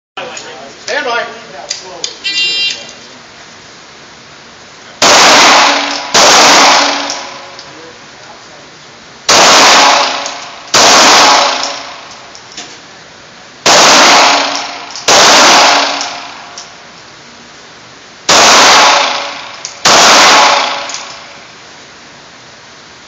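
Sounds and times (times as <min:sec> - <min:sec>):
pistol shots echoing indoors: 0:05.0 - 0:07.7, 0:09.3 - 0:12.2, 0:13.6 - 0:16.6, 0:18.3 - 0:21.4.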